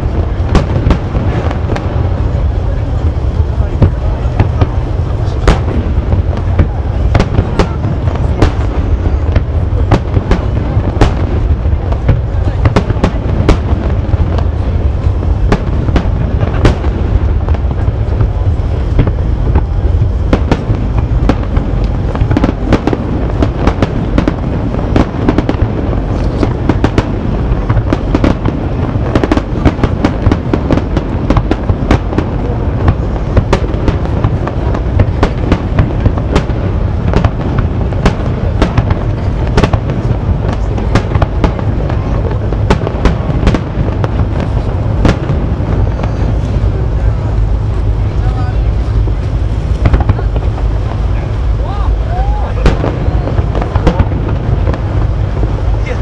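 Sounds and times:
firework shells bursting: 0:00.0 - 0:48.2, 0:52.0 - 0:56.0
low rumble: 0:00.0 - 0:56.0.

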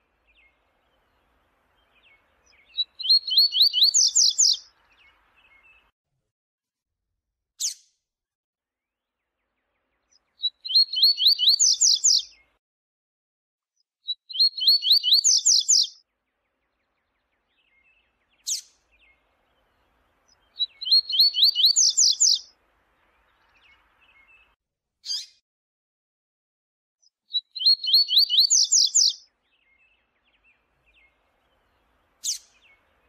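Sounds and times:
bird singing whistled notes: 0:00.2 - 0:05.9, 0:10.2 - 0:12.5, 0:14.1 - 0:22.5, 0:23.1 - 0:25.3, 0:27.3 - 0:33.0.

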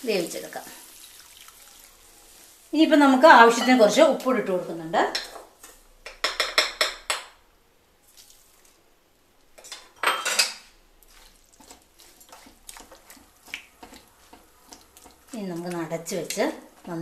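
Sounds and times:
metal utensils clinking: 0:09.6 - 0:10.6.

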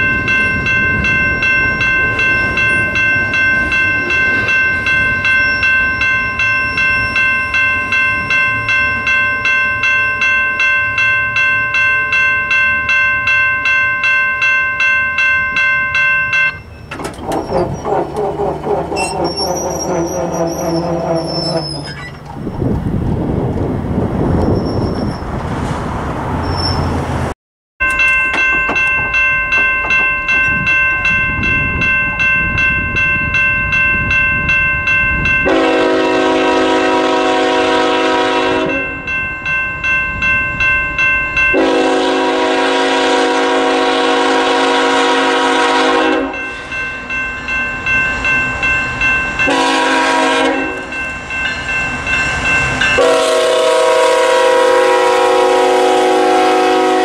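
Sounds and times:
locomotive bell ringing: 0:00.0 - 0:22.2, 0:27.8 - 0:57.0
freight train rumble: 0:00.0 - 0:57.0
train air horn blasts: 0:35.4 - 0:38.9, 0:41.5 - 0:46.4, 0:49.5 - 0:50.9, 0:53.0 - 0:57.0.

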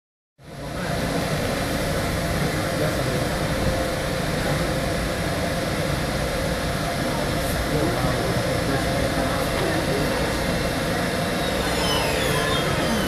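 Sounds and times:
locomotive cooling equipment humming: 0:00.4 - 0:13.0.

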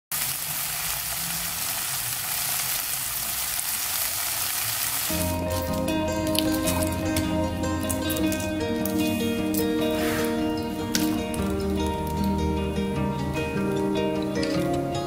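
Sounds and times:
food sizzling in a pan: 0:00.1 - 0:06.9
background music: 0:05.1 - 0:15.0.

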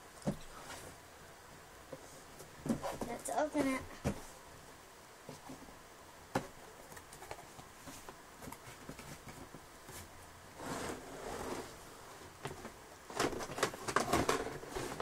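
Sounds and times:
plastic scraping on cardboard: 0:02.6 - 0:04.2, 0:07.2 - 0:11.8, 0:12.5 - 0:15.0.

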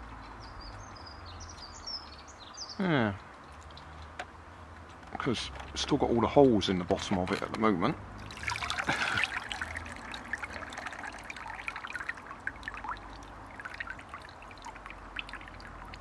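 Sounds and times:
water trickling and dripping: 0:03.2 - 0:04.2, 0:07.2 - 0:16.0
water splashing into water butt: 0:08.2 - 0:16.0.

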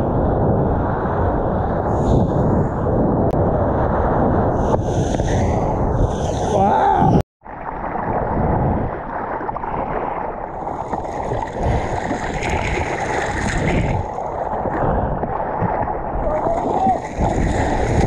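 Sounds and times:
water sloshing and splashing: 0:07.4 - 0:18.0.

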